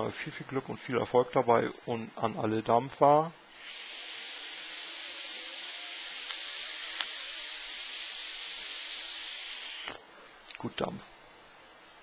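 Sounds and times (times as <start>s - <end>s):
atomizer hissing: 3.5s - 10.0s.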